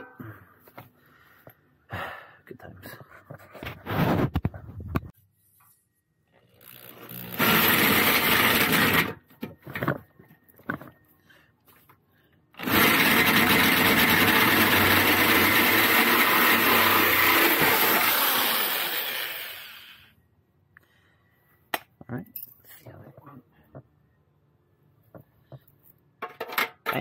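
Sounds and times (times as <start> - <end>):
power drill cutting metal: 6.6 - 9.2, 12.6 - 20.1.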